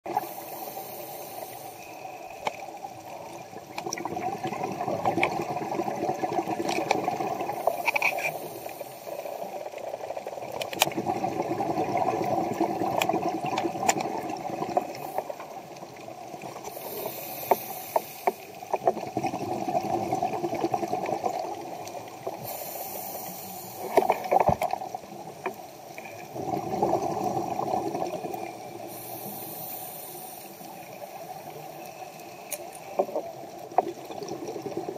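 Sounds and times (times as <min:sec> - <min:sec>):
regulator inhale hiss: 0:00.1 - 0:03.0, 0:07.4 - 0:09.6, 0:16.6 - 0:18.8, 0:22.2 - 0:24.4, 0:28.7 - 0:33.1
exhaled air bubbling: 0:03.2 - 0:31.6, 0:33.0 - 0:34.9.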